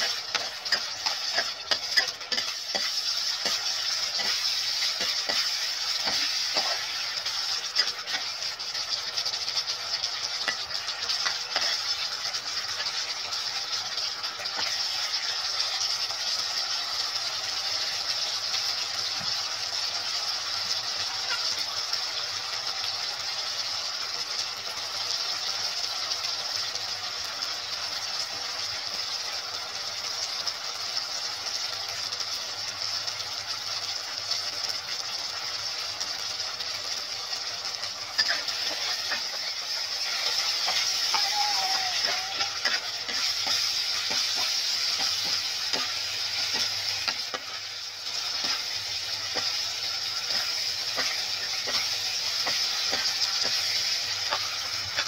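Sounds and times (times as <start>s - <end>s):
metal ladle scraping a pan: 0.0s - 8.4s, 38.1s - 41.4s, 42.0s - 55.0s
meatballs sizzling in a pan: 0.0s - 55.0s.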